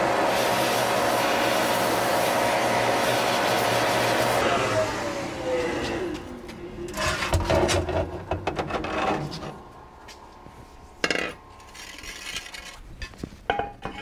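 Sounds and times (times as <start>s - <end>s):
metal parts clattering: 11.0s - 14.0s.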